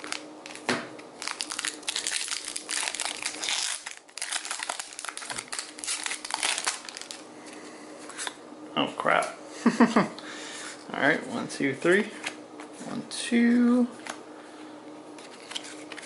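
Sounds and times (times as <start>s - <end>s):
foil wrapper crinkling: 0.0s - 7.2s.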